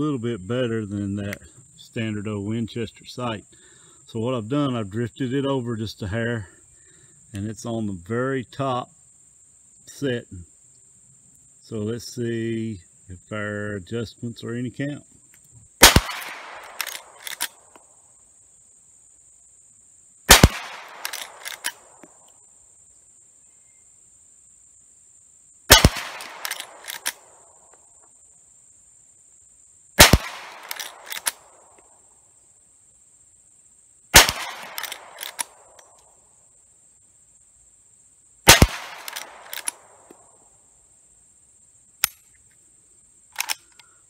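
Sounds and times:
rifle lever metallic clicks: 15.3s - 17.8s, 20.4s - 21.8s, 25.7s - 27.2s, 30.0s - 31.4s, 34.2s - 36.0s, 38.5s - 40.2s, 42.0s - 42.3s, 43.3s - 43.9s
rifle shots: 15.8s - 17.6s, 20.3s - 21.9s, 25.7s - 27.3s, 30.0s - 31.6s, 34.1s - 35.8s, 38.5s - 40.1s.

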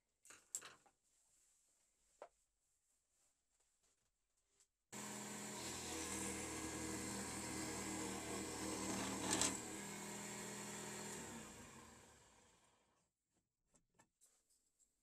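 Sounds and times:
jigsaw running free: 5.0s - 12.8s
jigsaw sawing wood: 5.0s - 12.8s.

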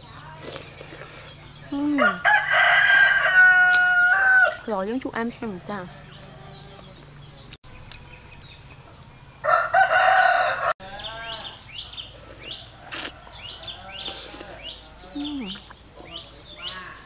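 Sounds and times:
birds chirping: 0.0s - 17.0s
rooster crowing: 2.0s - 4.7s, 9.4s - 11.6s.

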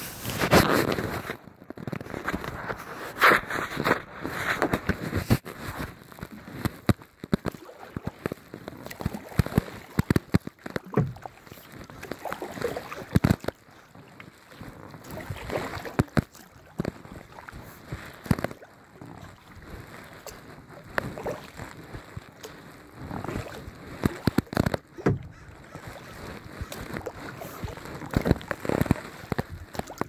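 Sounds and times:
paddle sloshing and dripping water: 0.0s - 30.0s.

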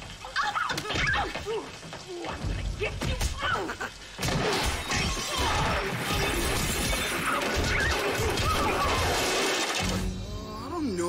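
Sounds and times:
music: 1.0s - 11.0s
cartoon crashing and clattering: 4.2s - 10.1s.

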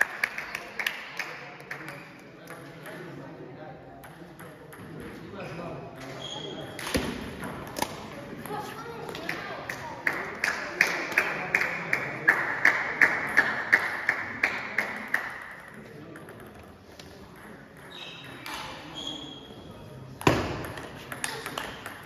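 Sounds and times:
table tennis ball bouncing: 4.0s - 5.1s, 6.8s - 10.2s, 13.3s - 18.8s, 20.2s - 22.0s.

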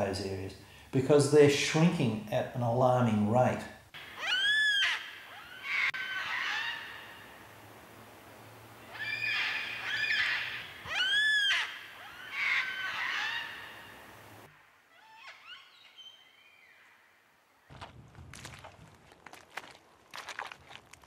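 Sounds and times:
bird call rising and falling: 4.0s - 7.4s, 8.8s - 17.1s
birds warbling and chattering: 4.0s - 7.4s, 8.8s - 16.8s.

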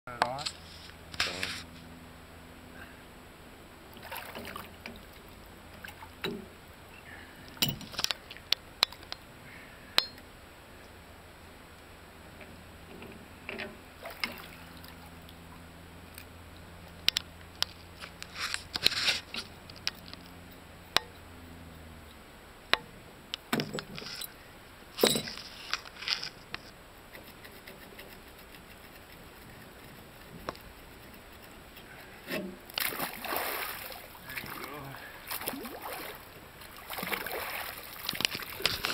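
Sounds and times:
faint low hum: 0.1s - 38.9s
lake water splashing: 3.9s - 6.2s, 14.0s - 15.4s, 32.6s - 38.9s
metal wrenches clinking on bolt: 7.6s - 8.2s, 25.0s - 25.4s.

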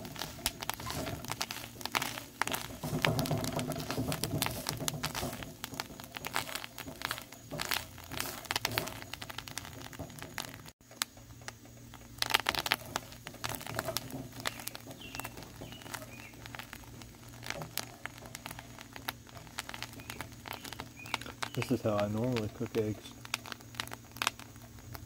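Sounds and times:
wooden spatula scraping skillet: 0.0s - 10.8s, 12.2s - 25.0s
short crackles: 0.0s - 25.0s.

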